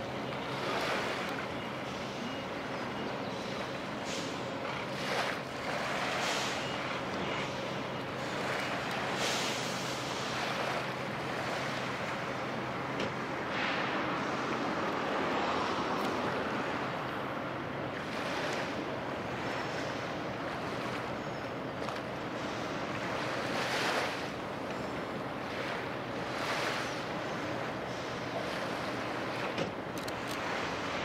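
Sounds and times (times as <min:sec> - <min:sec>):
small waves washing: 0:00.0 - 0:31.0
wind: 0:00.0 - 0:31.0.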